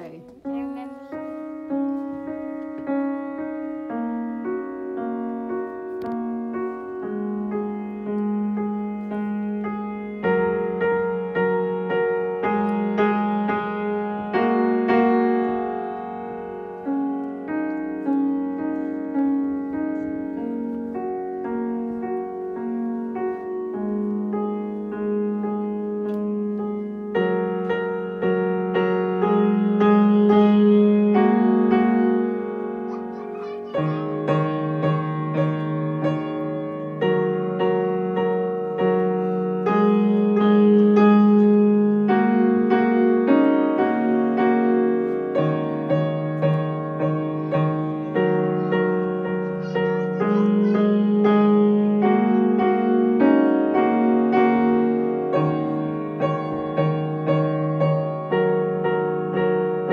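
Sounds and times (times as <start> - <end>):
grand piano playing: 0.0 - 59.9.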